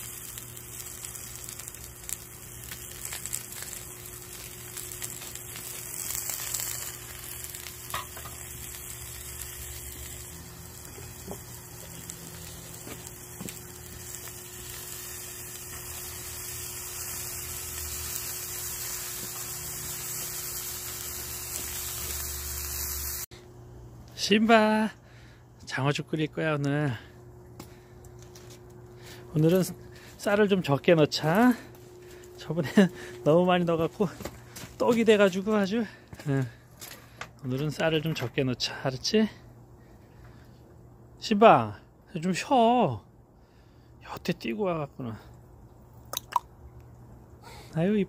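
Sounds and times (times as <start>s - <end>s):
meat sizzling in a frying pan: 0.0s - 23.3s.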